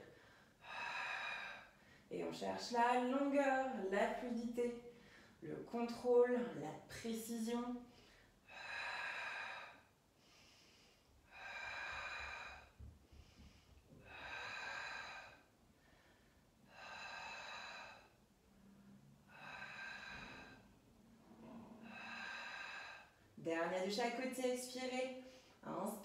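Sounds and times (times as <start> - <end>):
woman breathing through mouth: 7.9 - 21.0, 21.6 - 23.4.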